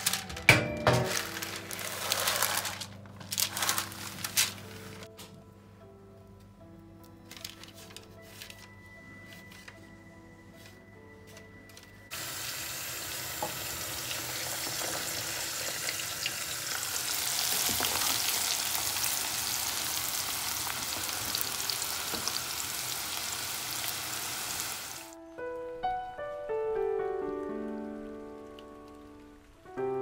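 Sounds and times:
food deep-frying in oil: 0:12.1 - 0:25.1.

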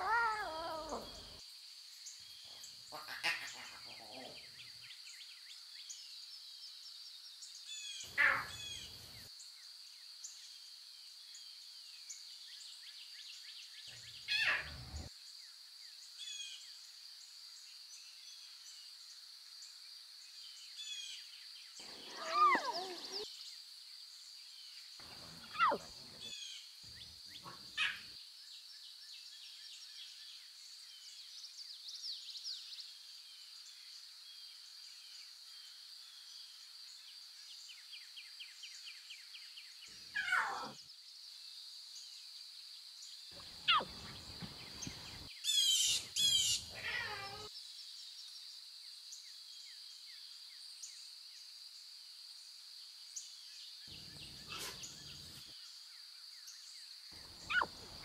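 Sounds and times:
bird chirps: 0:21.8 - 0:23.2, 0:25.0 - 0:28.1, 0:43.4 - 0:47.5, 0:57.2 - 0:58.0
short falling animal calls: 0:25.2 - 0:25.9, 0:43.6 - 0:43.9, 0:57.5 - 0:57.8.

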